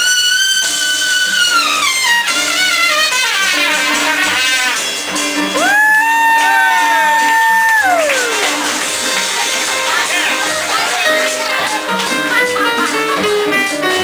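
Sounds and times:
trumpet solo: 0.0 - 9.2
conga drumming: 0.0 - 14.0.

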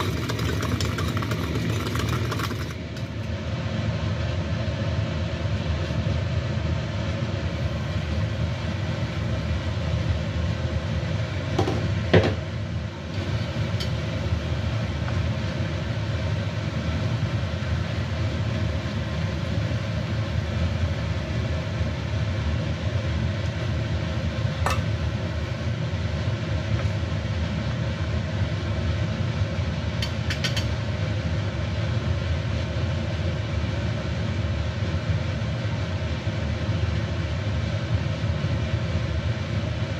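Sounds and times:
wok cooking rumble: 0.0 - 39.9
glass lid clanking: 24.6 - 24.9.

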